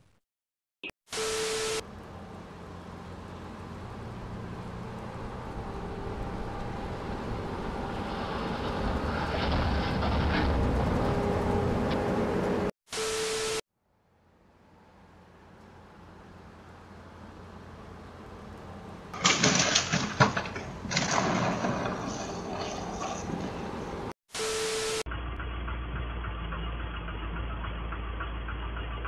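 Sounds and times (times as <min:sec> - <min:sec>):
tv static with steady tone: 0:01.1 - 0:01.8, 0:12.9 - 0:13.6, 0:24.4 - 0:25.0
rumbling vehicle noise: 0:01.6 - 0:12.8, 0:13.9 - 0:29.0.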